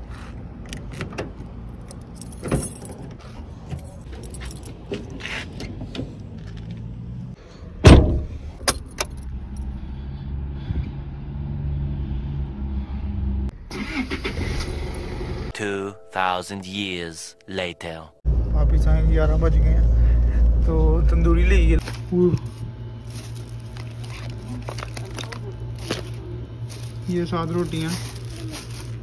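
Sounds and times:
keys jangling: 1.8 - 5.4
car door shutting thud: 7.8 - 8.3
steady low hum: 18.3 - 29.0.

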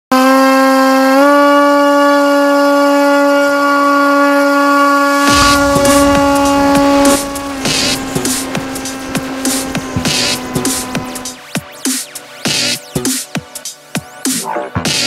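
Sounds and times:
electric motor propeller whine: 0.2 - 11.4
rushing wind noise: 5.1 - 11.4.

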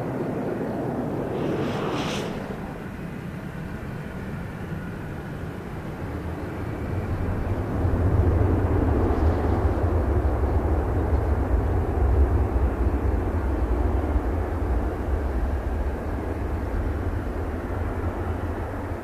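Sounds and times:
jet engines rumbling: 0.0 - 19.0.

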